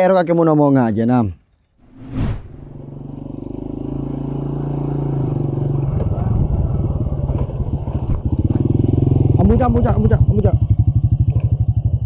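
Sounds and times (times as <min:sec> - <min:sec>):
motorcycle engine approaching: 0:02.9 - 0:12.0.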